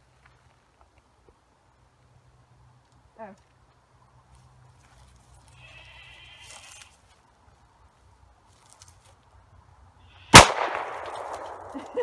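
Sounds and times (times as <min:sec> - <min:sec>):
pistol shot with ringing echo: 0:10.3 - 0:11.7.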